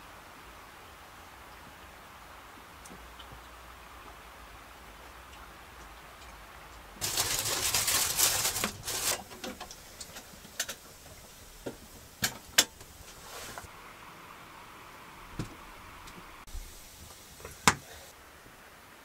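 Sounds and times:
rustling and shuffling movement: 0:07.0 - 0:13.7.

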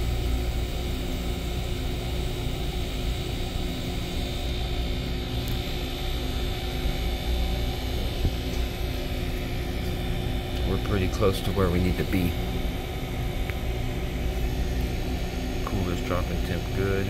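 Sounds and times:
compressor humming: 0:00.0 - 0:17.0.

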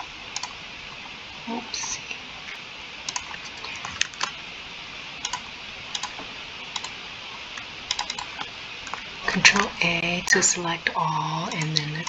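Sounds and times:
steady background hiss: 0:00.0 - 0:12.0
keyboard and mouse clicking: 0:00.4 - 0:00.6, 0:03.1 - 0:04.3, 0:05.2 - 0:07.0, 0:07.6 - 0:09.0, 0:11.5 - 0:11.9.

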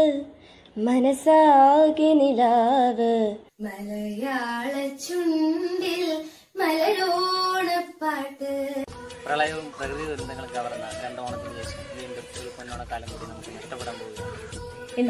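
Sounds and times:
women singing unaccompanied: 0:00.0 - 0:09.3, 0:13.5 - 0:15.0.

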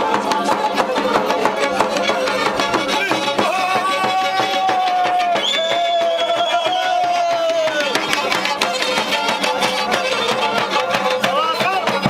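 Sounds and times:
bass drum beats: 0:00.0 - 0:12.0
fiddle melody: 0:00.4 - 0:05.2, 0:07.8 - 0:12.0.

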